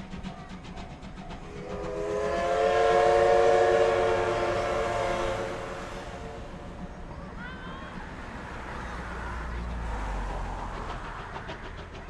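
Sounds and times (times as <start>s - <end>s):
train pulling away: 0.0s - 12.0s
steam whistle blast: 1.5s - 6.6s.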